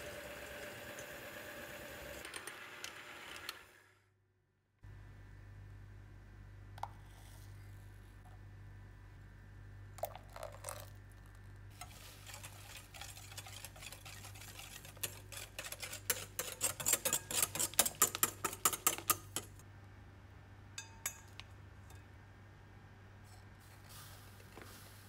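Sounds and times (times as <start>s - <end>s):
whisk clicking against glass bowl: 12.3s - 19.6s.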